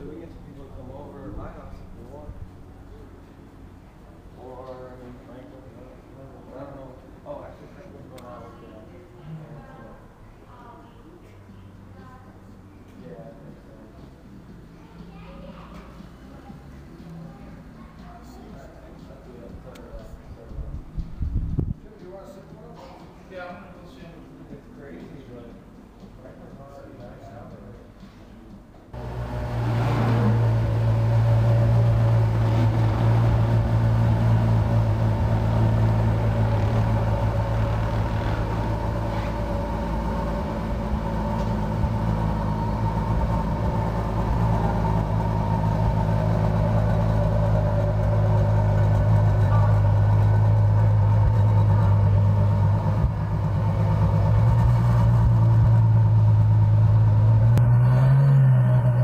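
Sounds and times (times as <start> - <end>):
car engine idling: 28.9 - 59.0.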